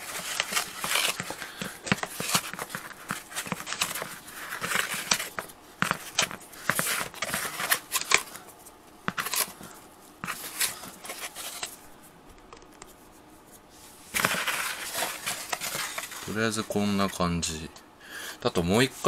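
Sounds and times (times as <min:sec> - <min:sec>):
hands scraping plastic cover: 0:00.0 - 0:08.4, 0:14.1 - 0:16.6.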